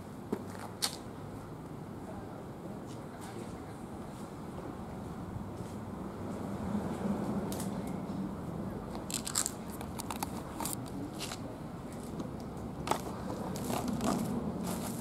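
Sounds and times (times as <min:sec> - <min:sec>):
low background noise: 0:00.0 - 0:15.0
dry leaves crunching underfoot: 0:09.1 - 0:09.7, 0:12.9 - 0:15.0.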